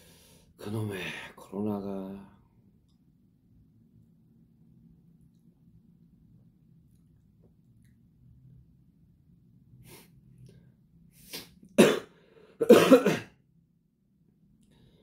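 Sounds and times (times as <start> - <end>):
man coughing: 11.8 - 13.4.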